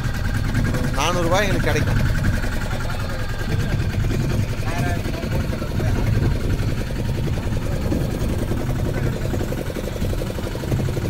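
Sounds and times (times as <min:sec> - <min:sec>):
boat diesel engine idling: 0:00.0 - 0:11.0.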